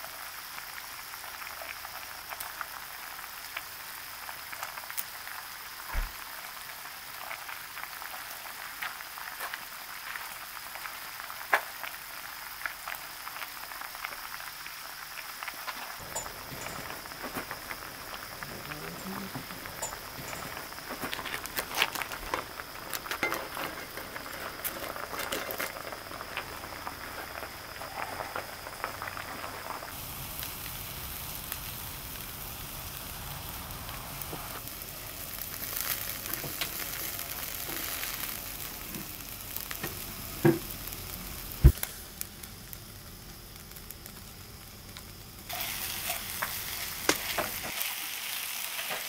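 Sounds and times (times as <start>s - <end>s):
food sizzling in a pan: 0.0s - 49.0s.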